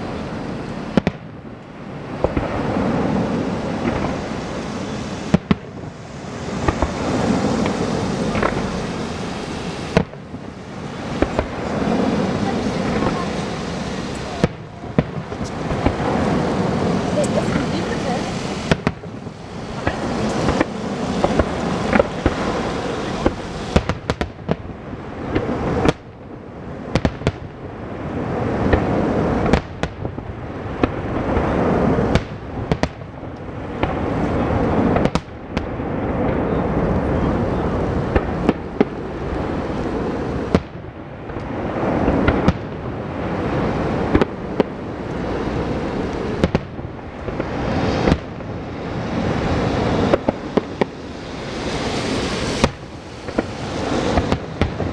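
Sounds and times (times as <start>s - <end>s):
fireworks rumble and crackle: 0.0s - 54.9s
firework shells bursting: 2.1s - 26.1s, 38.1s - 54.9s.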